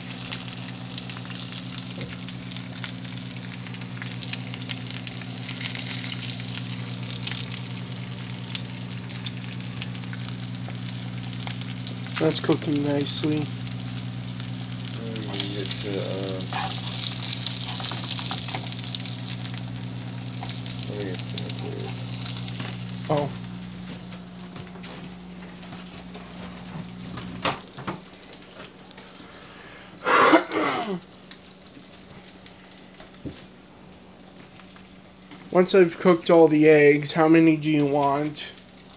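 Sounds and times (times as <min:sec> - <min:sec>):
eggs sizzling in grease: 0:00.0 - 0:38.9
steady low hum: 0:00.0 - 0:38.9
pops and crackles: 0:00.2 - 0:29.1.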